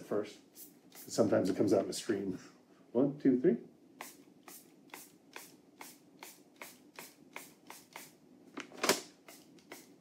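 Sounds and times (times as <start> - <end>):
pump-spray bottle hissing: 0.6 - 1.2, 4.0 - 8.2, 9.2 - 10.0.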